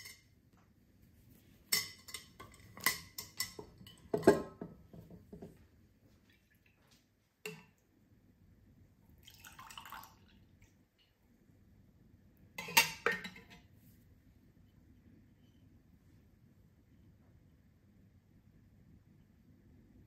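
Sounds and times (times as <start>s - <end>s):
liquid pouring into glass: 9.2s - 10.4s.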